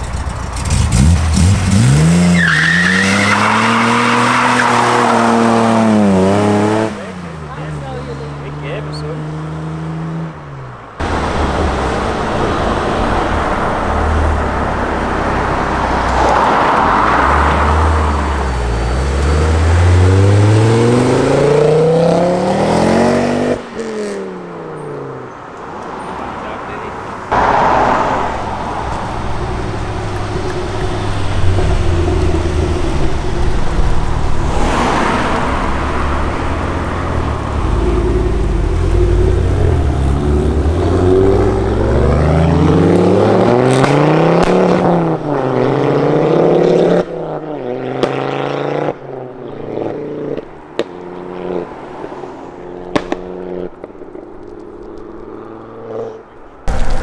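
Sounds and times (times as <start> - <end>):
turbocharged engines accelerating: 0.0 - 24.4, 26.2 - 52.1
exhaust pops: 52.9 - 55.1.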